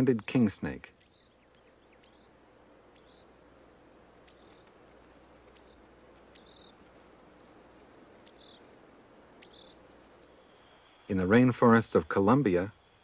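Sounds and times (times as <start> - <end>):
soft hiss: 0.0 - 13.0
faint ticks: 4.2 - 10.4
small animal chirping: 4.2 - 10.5.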